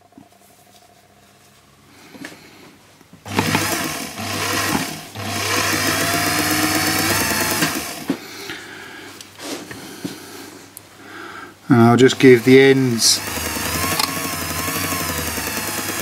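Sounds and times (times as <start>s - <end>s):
lathe motor humming: 3.3s - 8.2s, 11.8s - 16.0s.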